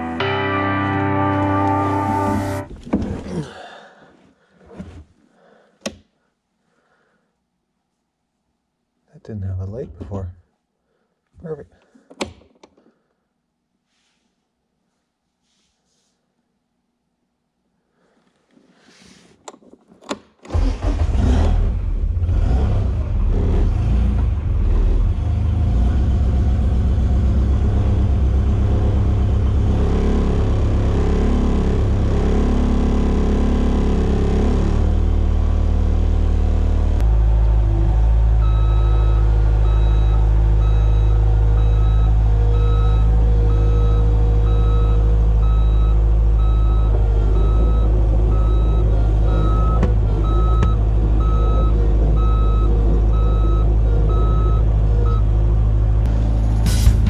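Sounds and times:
diesel engine starting and running: 0:20.4 - 0:57.0
backup alarm beeping: 0:38.5 - 0:55.3.

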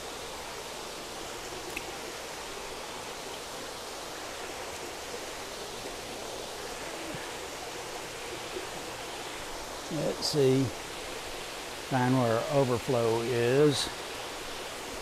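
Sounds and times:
water rushing through tanks: 0:00.0 - 0:15.0.

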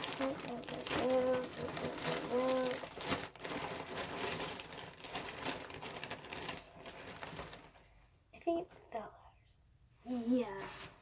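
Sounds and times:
packaging crinkling: 0:00.0 - 0:07.8.

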